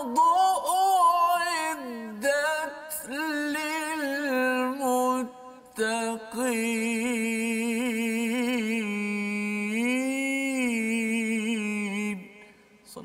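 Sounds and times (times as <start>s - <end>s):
man reciting melodically: 0.0s - 13.0s.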